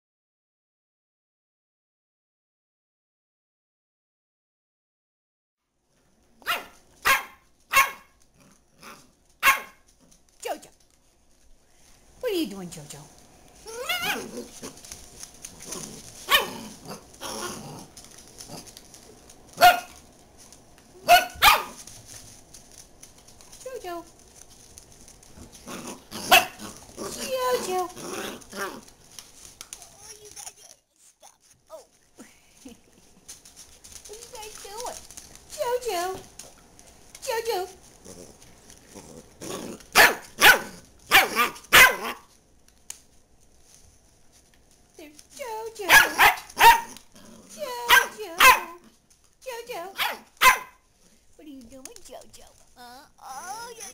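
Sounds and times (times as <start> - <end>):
dog barking: 6.4 - 8.2, 9.4 - 9.8, 13.8 - 14.3, 16.3 - 16.6, 19.6 - 20.0, 21.0 - 21.8, 26.2 - 26.7, 39.9 - 42.3, 45.9 - 47.0, 47.8 - 48.8, 49.9 - 50.8.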